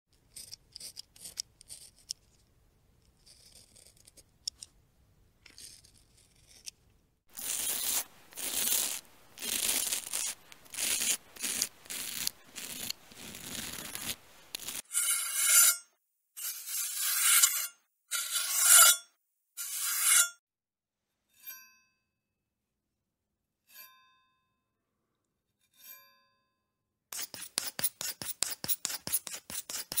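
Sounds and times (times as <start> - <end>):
razor scraping: 0.2 - 2.4, 5.5 - 20.4, 27.1 - 30.0
metallic swipes with ringing edge: 14.9 - 20.4.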